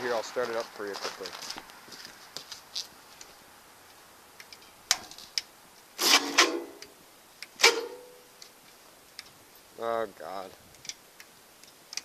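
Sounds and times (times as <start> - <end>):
sharp clicks of tractor controls: 3.9 - 7.6, 10.7 - 12.0
metallic clanks ringing: 7.6 - 8.2.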